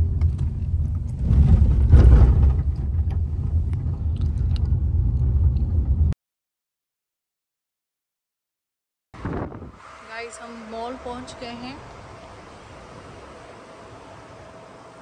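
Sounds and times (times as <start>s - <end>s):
taxi engine rumble from inside: 0.0s - 6.2s.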